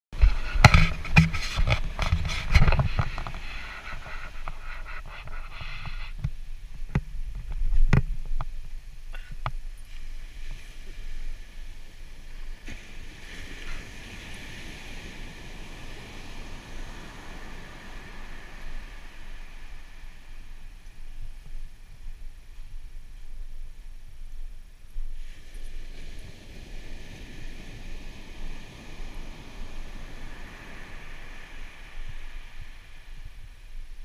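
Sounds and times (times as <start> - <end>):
wind: 0.0 - 34.0
knocks and rubbing on microphone: 0.2 - 8.6
surf washing on beach: 0.2 - 34.0.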